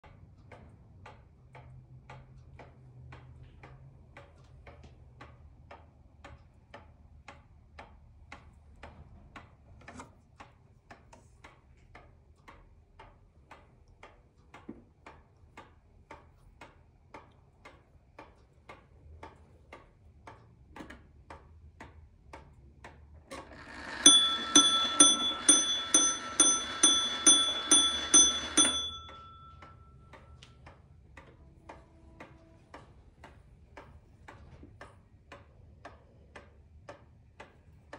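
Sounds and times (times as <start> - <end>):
pendulum wall clock ticking: 0.0 - 37.9
clock striking on gong: 23.4 - 29.9.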